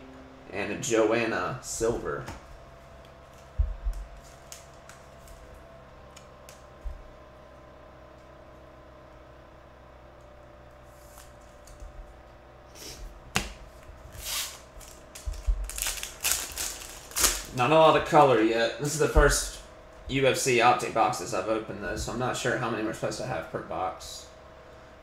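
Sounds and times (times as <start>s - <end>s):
faint steady hum: 0.0s - 25.0s
trading cards being handled: 3.0s - 5.5s, 12.8s - 17.7s
foil wrapper crinkling: 14.2s - 17.7s.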